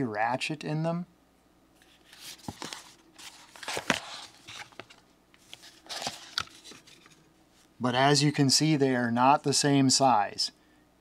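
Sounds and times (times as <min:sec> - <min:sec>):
cardboard boxes handled on table: 0:02.0 - 0:07.2.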